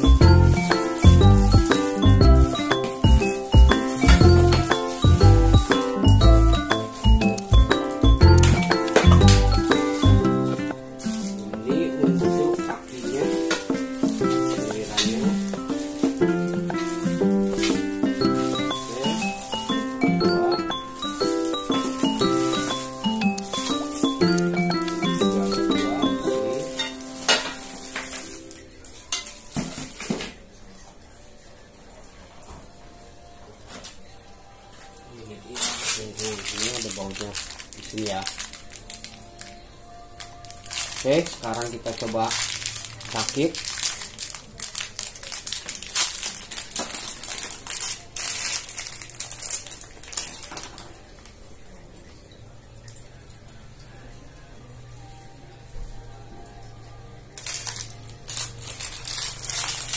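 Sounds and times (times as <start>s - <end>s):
background music: 0.0s - 29.6s
plastic wrap crinkling: 0.0s - 30.4s, 34.8s - 51.5s, 57.3s - 59.9s.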